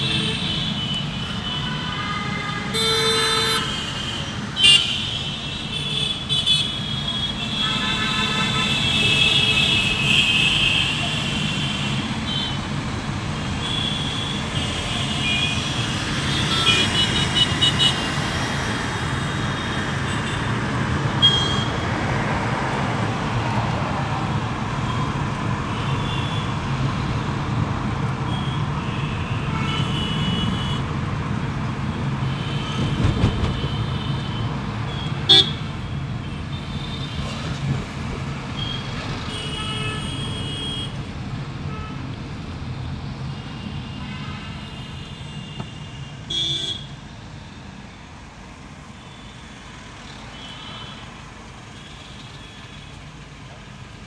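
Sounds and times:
car horns honking: 0.0s - 12.7s, 32.3s - 37.2s, 43.9s - 47.0s
engine and road rumble: 0.0s - 54.0s.

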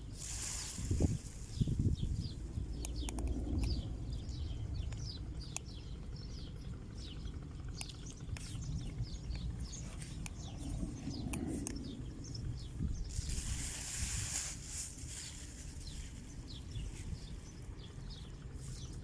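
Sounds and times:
small birds chirping: 0.0s - 19.0s
steady low rumble: 0.0s - 19.0s
sharp clicks: 2.2s - 12.1s.

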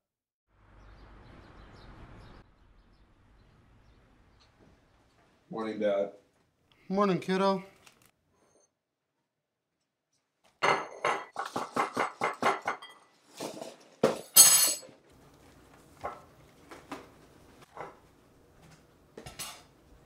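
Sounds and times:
dishes clinking and knocking: 10.6s - 15.0s, 19.2s - 19.8s.

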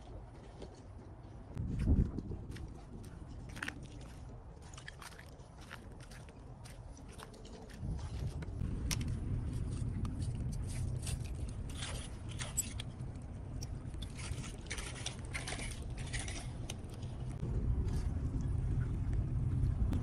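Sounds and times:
steady low rumble: 1.4s - 20.0s
shells scraping and crunching: 9.5s - 17.4s.

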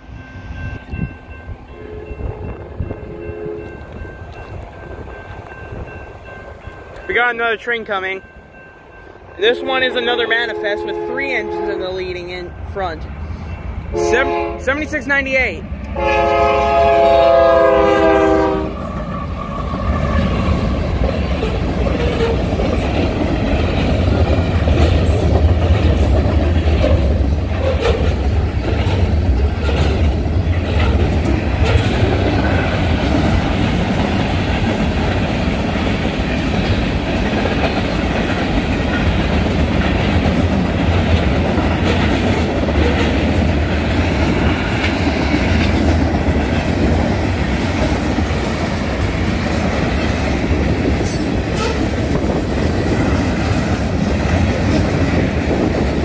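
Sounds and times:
rumble of train wheels: 0.0s - 56.0s
locomotive horn sounding a chord: 9.5s - 11.9s, 13.9s - 14.7s, 16.0s - 18.7s
clickety-clack over rail joints: 19.0s - 56.0s.

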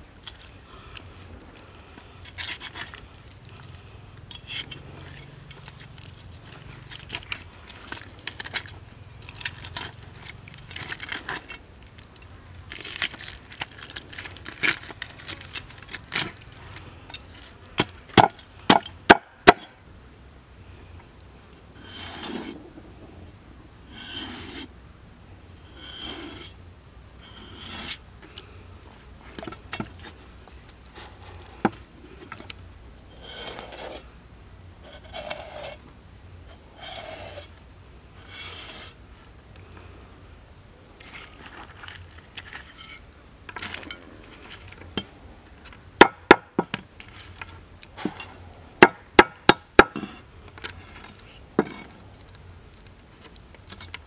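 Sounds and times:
cleaver scraping fish scales: 21.8s - 22.6s, 23.9s - 24.7s, 27.2s - 28.0s, 34.8s - 35.8s, 36.8s - 37.5s, 38.2s - 39.0s.

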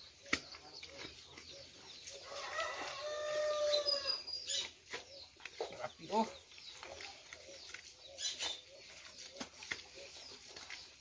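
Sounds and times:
rooster crowing: 2.3s - 4.2s.

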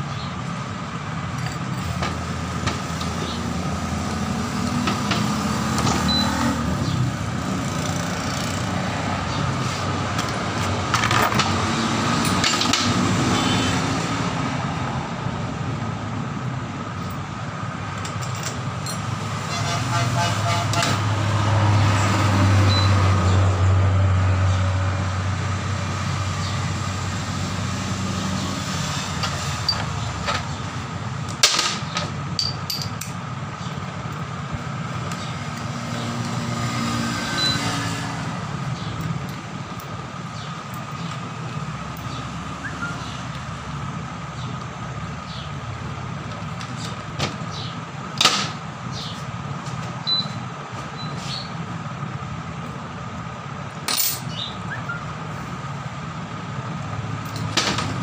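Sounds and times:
metal parts clinking: 31.4s - 33.2s, 53.8s - 54.4s.

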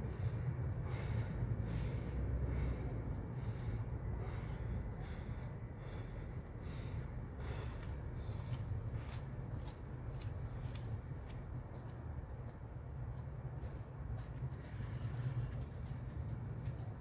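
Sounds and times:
man breathing hard through nose: 0.0s - 10.8s
steady low rumble: 0.0s - 17.0s.

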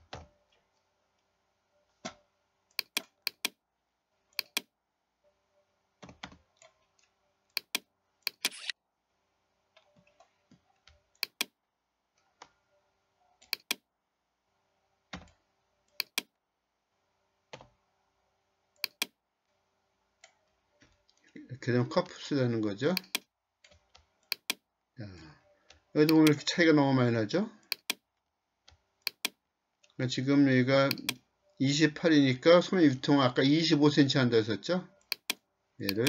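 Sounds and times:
mouse and keyboard clicks: 2.0s - 3.6s, 4.4s - 4.7s, 6.0s - 8.8s, 10.9s - 11.6s, 13.4s - 13.8s, 15.2s - 16.3s, 18.8s - 19.2s, 22.9s - 24.6s, 26.0s - 26.4s, 27.6s - 28.0s, 28.7s - 29.4s, 30.8s - 31.2s, 35.0s - 36.0s.

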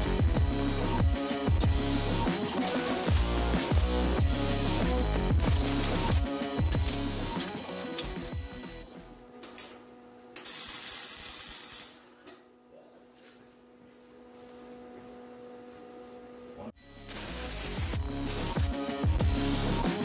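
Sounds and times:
welding arc crackling and hissing: 2.3s - 8.8s, 10.4s - 12.1s, 17.0s - 20.0s.

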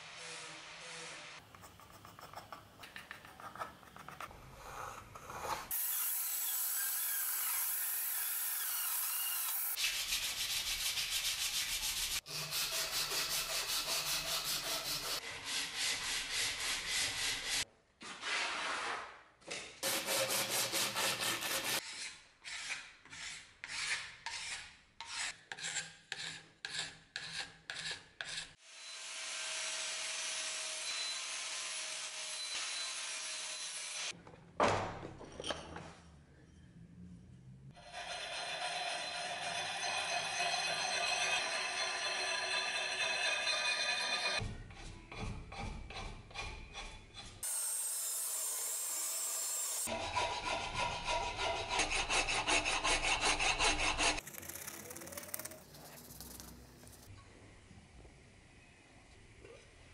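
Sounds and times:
rasp scraping wood: 19.8s - 28.6s, 49.8s - 57.1s.

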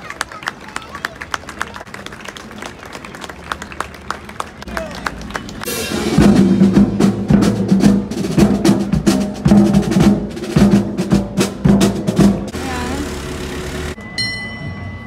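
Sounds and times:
marching band playing: 4.7s - 14.0s
drums beating steady rhythm: 5.6s - 14.0s.

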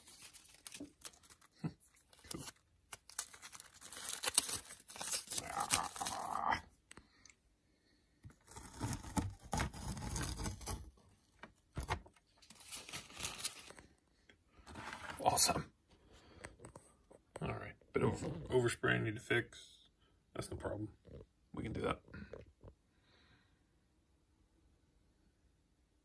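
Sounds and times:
tape crinkling: 0.0s - 6.6s, 8.3s - 13.9s
masking tape peeling: 2.1s - 6.4s, 8.5s - 10.9s.

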